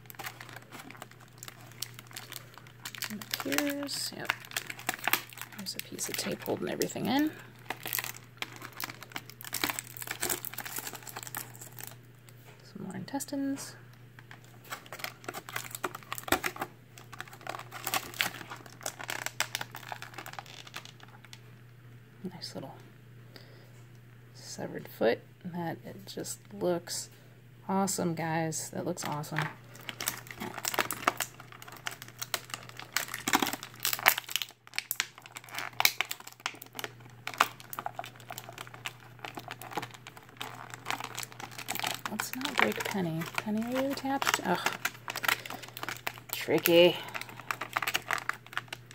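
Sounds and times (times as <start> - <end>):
plastic tray clicking and crackling: 0.0 - 7.0, 29.4 - 48.9
plastic packaging crinkling: 0.0 - 12.5, 14.1 - 21.5, 29.0 - 48.9.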